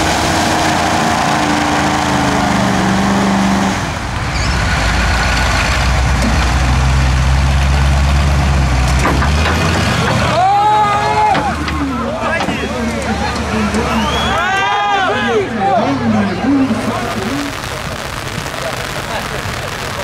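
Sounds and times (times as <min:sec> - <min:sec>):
truck engines revving: 0:00.0 - 0:20.0
broad rushing noise: 0:15.2 - 0:20.0.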